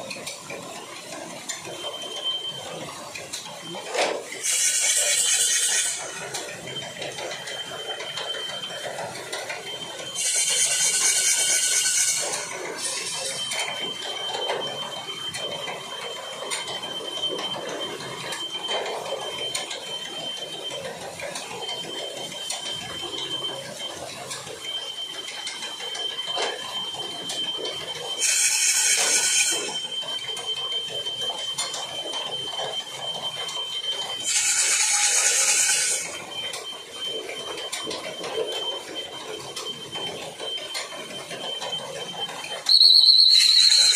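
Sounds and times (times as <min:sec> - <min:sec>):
thin high squeal: 0:04.4 - 0:06.4, 0:10.2 - 0:13.6, 0:28.1 - 0:30.0, 0:34.2 - 0:36.2, 0:42.7 - 0:43.9.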